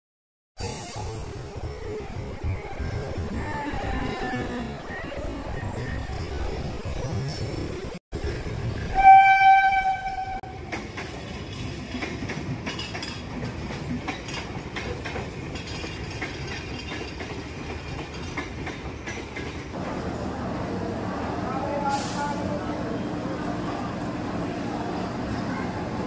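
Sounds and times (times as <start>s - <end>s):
train wheels rumbling and clattering: 8.2s - 26.0s
train horn blast: 8.9s - 10.6s.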